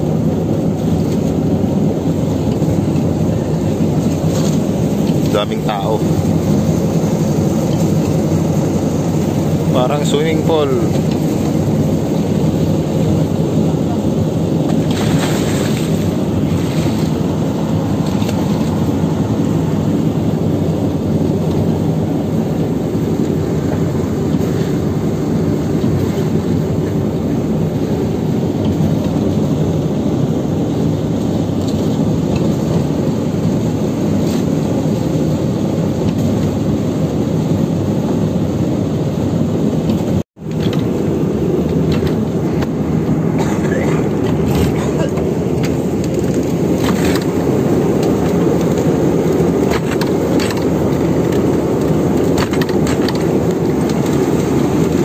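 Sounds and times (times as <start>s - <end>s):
boat engine droning: 0.0s - 55.0s.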